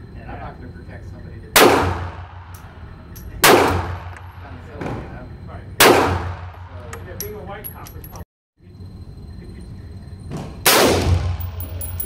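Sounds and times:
pistol shots indoors: 1.6 - 4.3, 5.8 - 6.7, 10.6 - 11.6.

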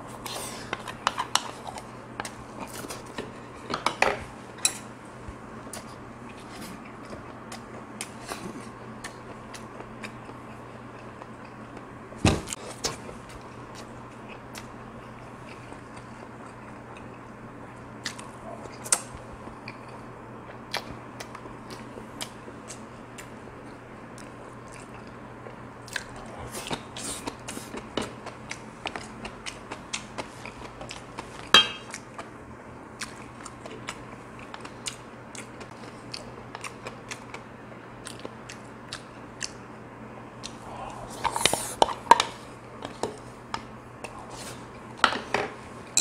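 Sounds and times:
person chewing: 5.7 - 11.9, 12.6 - 17.3, 24.2 - 32.4, 33.0 - 39.7, 40.4 - 43.0.

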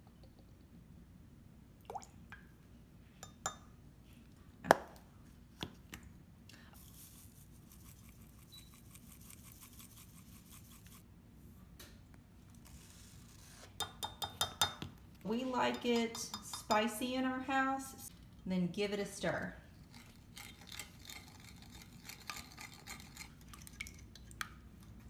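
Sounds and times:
spoon and glass cup clinking: 3.2 - 3.7, 15.7 - 16.9.

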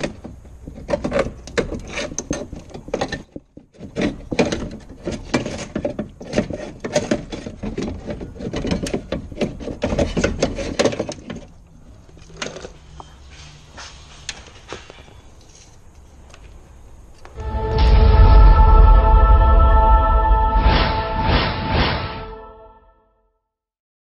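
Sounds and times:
metal rails rattling and scraping: 0.0 - 12.9.

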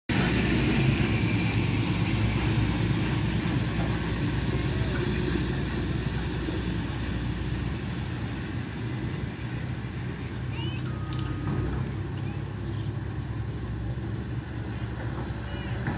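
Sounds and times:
excavator diesel engine: 0.0 - 15.9
dump truck driving past: 0.1 - 15.9.

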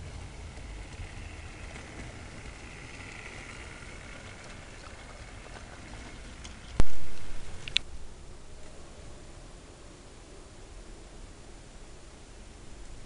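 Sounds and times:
model train motor whine: 0.0 - 7.8
wheels rattling on track: 0.0 - 7.8
sharp click: 6.8 - 7.9.

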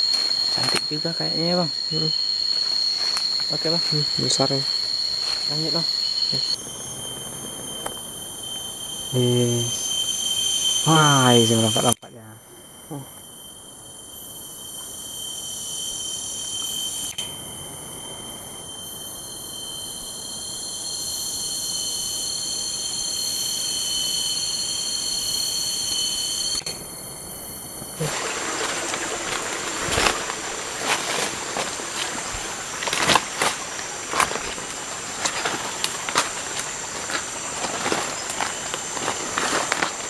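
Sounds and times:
cicadas whining: 0.0 - 40.0
footsteps through undergrowth: 2.4 - 5.8, 28.2 - 40.0.

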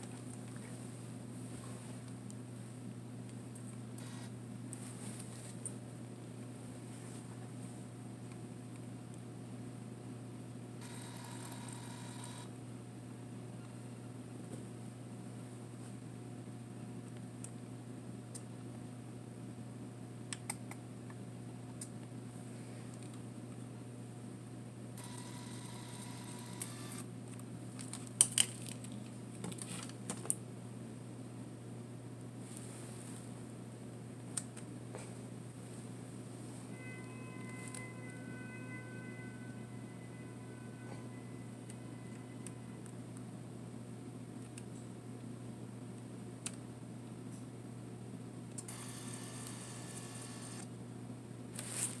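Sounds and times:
camera mechanical whir: 4.0 - 4.4, 10.8 - 12.5, 25.0 - 27.1, 48.7 - 50.7.

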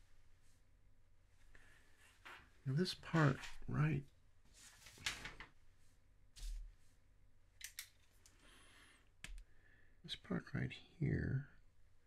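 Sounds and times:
faint sharp clicks and taps: 9.2 - 9.5.

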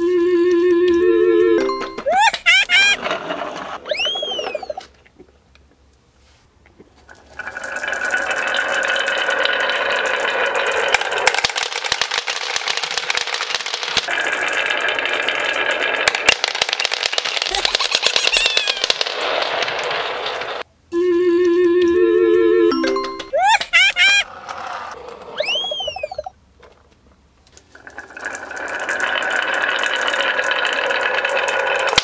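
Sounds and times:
marbles clattering on wooden track: 7.0 - 20.7, 27.5 - 32.0
marbles dropping onto floor: 7.2 - 20.6, 27.8 - 32.0.

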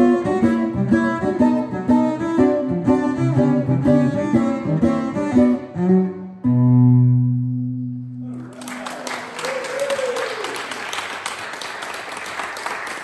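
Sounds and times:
cello and bandolim playing: 0.0 - 7.8
applause: 8.3 - 13.0.

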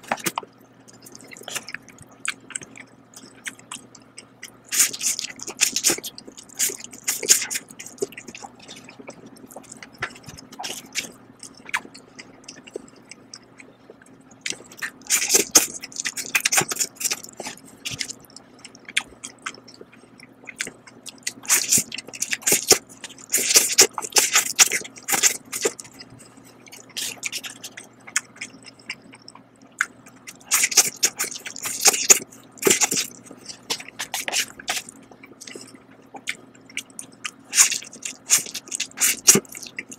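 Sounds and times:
person chewing: 0.0 - 39.9
person slurping noodles: 37.5 - 39.7.

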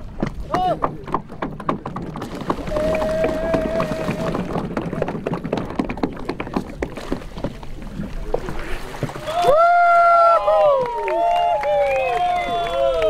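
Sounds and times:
water splashing off fishing net: 8.0 - 9.9.

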